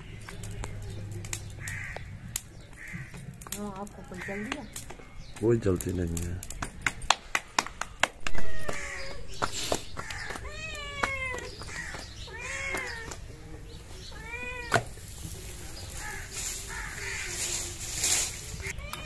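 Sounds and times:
cat meowing: 0:08.3 - 0:09.3, 0:10.1 - 0:13.2, 0:14.1 - 0:14.8, 0:18.7 - 0:19.0.

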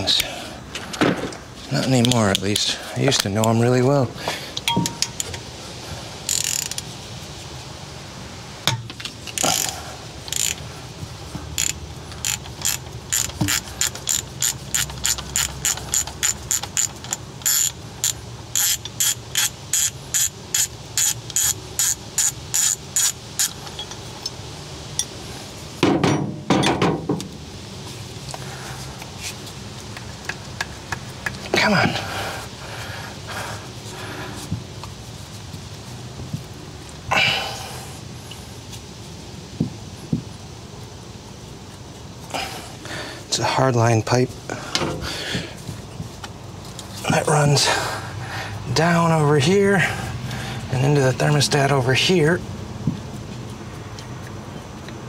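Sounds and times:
ratchet wrench clicking: 0:06.3 - 0:06.9, 0:09.2 - 0:10.6, 0:11.6 - 0:24.4.

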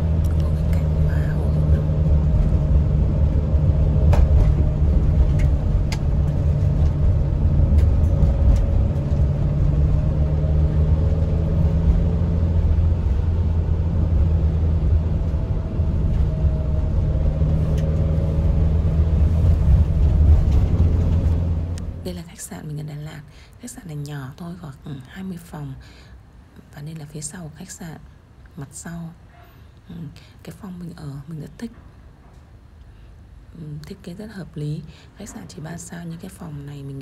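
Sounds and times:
car engine and road rumble: 0:00.0 - 0:23.0.

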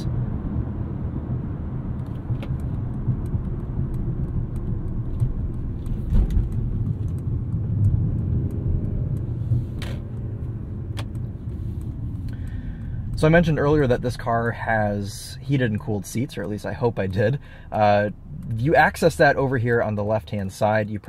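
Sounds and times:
car engine running: 0:00.0 - 0:21.0
road and tyre noise: 0:00.0 - 0:21.0
light ticks: 0:02.0 - 0:14.6, 0:15.5 - 0:20.0
low thump: 0:06.0 - 0:06.9.

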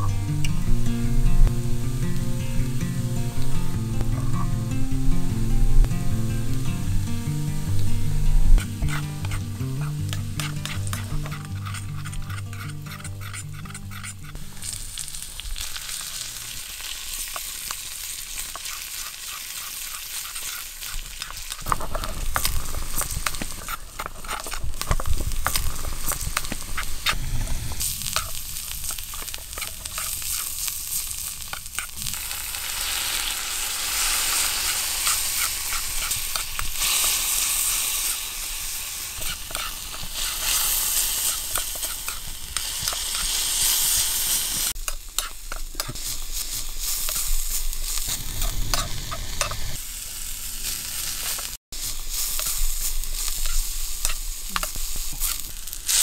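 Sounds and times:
food sizzling in a wok: 0:00.0 - 0:56.0
metal spoon scraping and tapping pan: 0:08.3 - 0:14.8, 0:18.4 - 0:27.2, 0:28.0 - 0:30.5, 0:34.5 - 0:37.7, 0:39.2 - 0:43.4, 0:44.8 - 0:46.2, 0:48.4 - 0:49.7, 0:52.3 - 0:52.6, 0:53.2 - 0:55.5.

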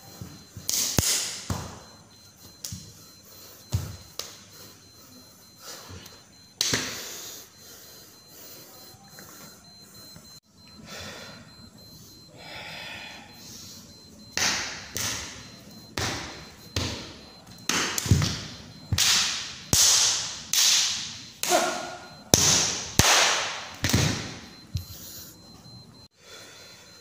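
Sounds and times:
sharp hand slaps: 0:06.6 - 0:06.9, 0:22.4 - 0:24.0.

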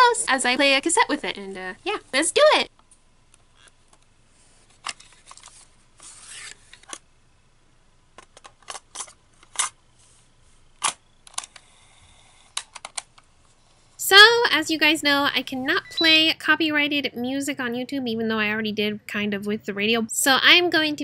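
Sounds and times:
plastic clicks and snaps: 0:12.5 - 0:13.3.

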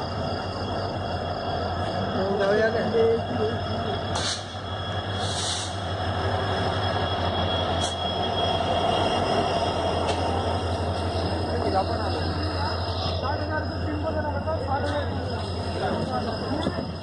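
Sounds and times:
train locomotive rumbling past: 0:00.0 - 0:17.0
brief hiss: 0:04.2 - 0:04.6, 0:05.2 - 0:05.8.

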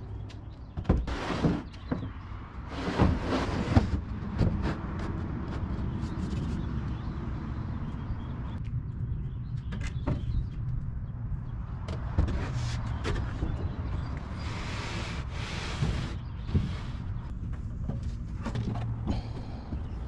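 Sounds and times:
steady low rumble: 0:04.1 - 0:12.2.

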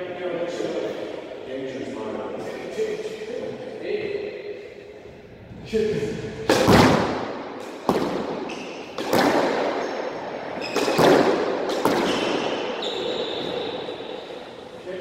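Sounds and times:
squash ball hits echoing: 0:06.4 - 0:14.3.

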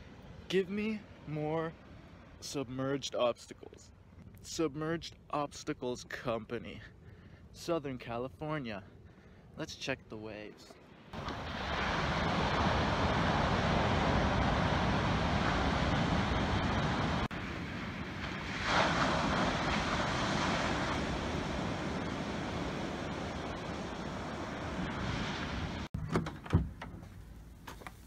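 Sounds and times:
ocean surf breaking: 0:11.1 - 0:26.0
wind on microphone: 0:11.2 - 0:25.9.

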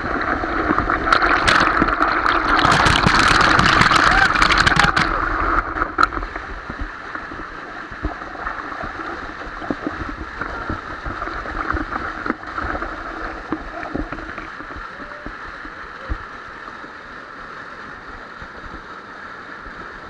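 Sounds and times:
water hitting the lens: 0:00.0 - 0:15.1
waterfall rushing over rocks: 0:00.0 - 0:20.0.

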